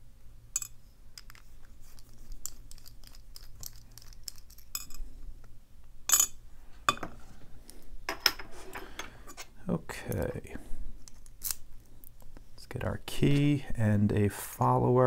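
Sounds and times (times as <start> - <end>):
metal parts clinking on tray: 0.6 - 1.4, 2.3 - 5.0, 6.1 - 7.1
screwdriver clicking and scraping: 0.6 - 5.0.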